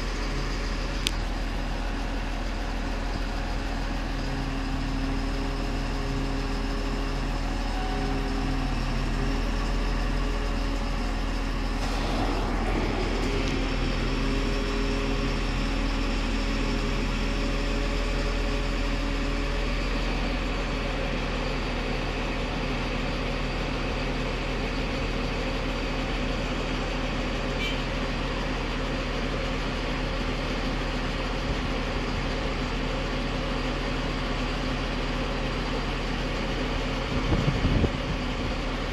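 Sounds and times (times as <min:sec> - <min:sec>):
crane diesel engine droning: 0:00.0 - 0:38.9.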